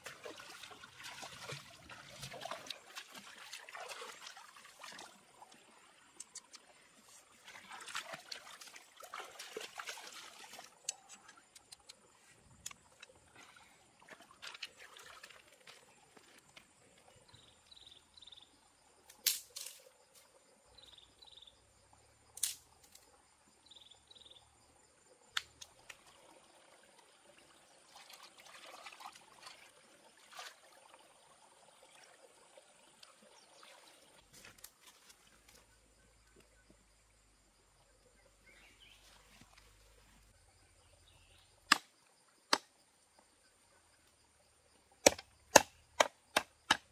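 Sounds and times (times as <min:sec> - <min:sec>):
water splashing in a bowl: 0:00.0 - 0:05.6, 0:07.4 - 0:10.9, 0:27.9 - 0:31.0.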